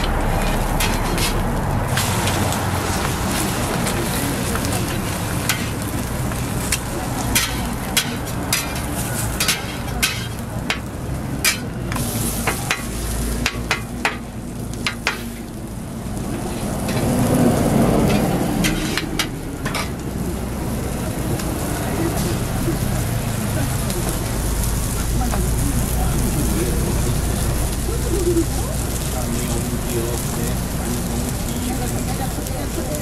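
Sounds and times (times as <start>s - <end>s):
low rushing sound: 0.0s - 7.4s
food sizzling on a griddle: 0.0s - 33.0s.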